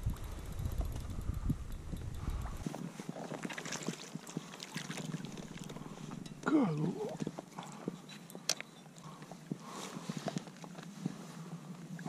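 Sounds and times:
fish splashing in net: 0:03.4 - 0:05.7
wordless vocal exclamation: 0:06.4 - 0:07.2.

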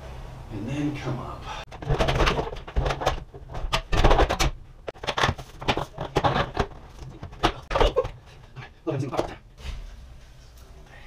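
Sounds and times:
window frame knocking and scraping: 0:01.7 - 0:08.1.

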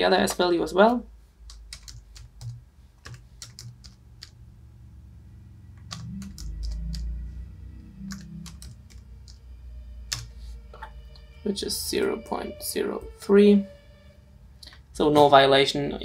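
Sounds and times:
computer keyboard keys clicking: 0:01.5 - 0:04.4, 0:05.8 - 0:07.1, 0:08.1 - 0:09.4, 0:10.1 - 0:10.3
low rumble: 0:04.0 - 0:15.2.

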